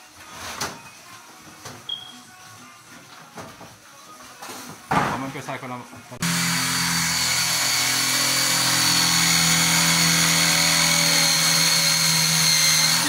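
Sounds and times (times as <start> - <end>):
cordless drill whining: 6.2 - 13.0.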